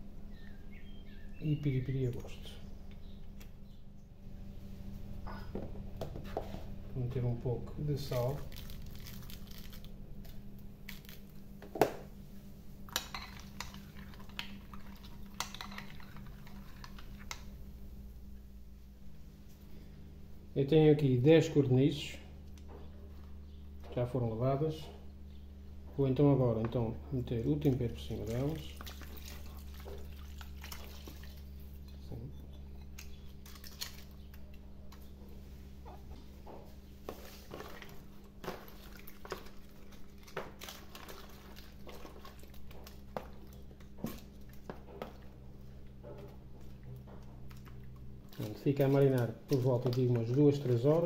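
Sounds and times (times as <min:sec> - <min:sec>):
spoon stirring liquid: 0:12.9 - 0:17.4, 0:37.0 - 0:50.8
wet drips: 0:27.6 - 0:31.9
small wet clicks: 0:32.7 - 0:35.1, 0:37.1 - 0:51.0.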